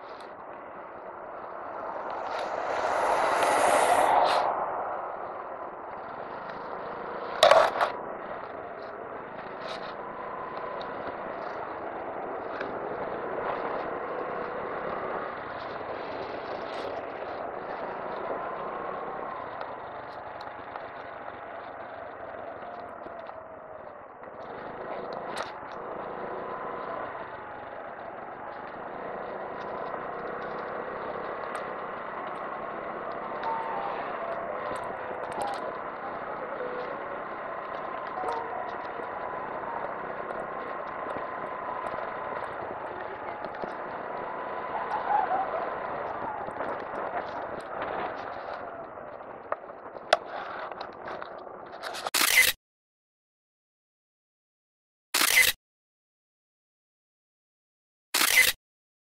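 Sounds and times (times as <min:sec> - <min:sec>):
loud rush of noise: 0:00.0 - 0:08.2
road and wind noise: 0:00.0 - 0:52.6, 0:55.2 - 0:55.6, 0:58.2 - 0:58.6
motorcycle engine running: 0:17.6 - 0:51.7.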